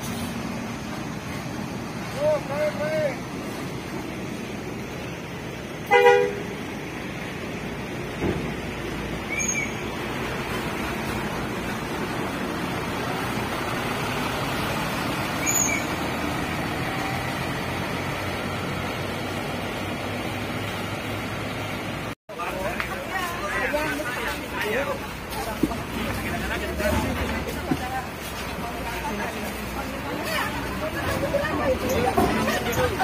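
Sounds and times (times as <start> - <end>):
bus engine running: 0.0 - 33.0
bus horn toot: 5.8 - 6.6.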